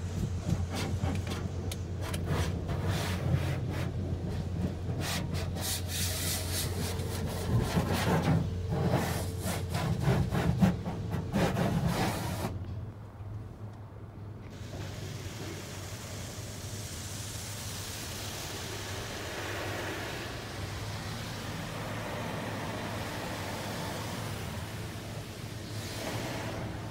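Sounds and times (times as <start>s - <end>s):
water spray hitting car: 14.5s - 26.9s.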